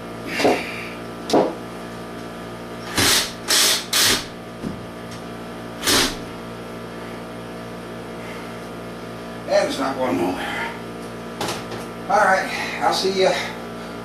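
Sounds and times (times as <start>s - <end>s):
power drill-driver bursts: 3.0s - 4.2s.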